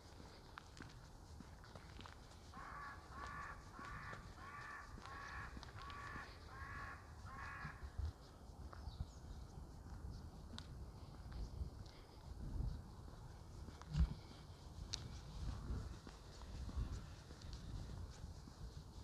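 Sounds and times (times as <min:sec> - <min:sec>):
crow cawing: 0:02.5 - 0:08.0.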